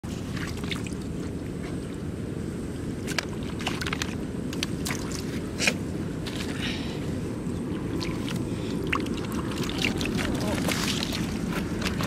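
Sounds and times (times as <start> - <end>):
wet clicks and splashes in mud: 3.0 - 5.8, 8.0 - 12.0.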